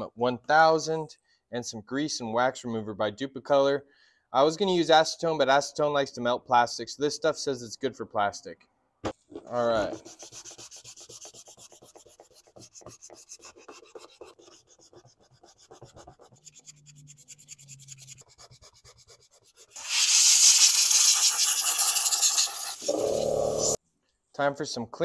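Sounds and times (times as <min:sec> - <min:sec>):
sandpaper rasping on plastic: 0:09.8 - 0:23.8.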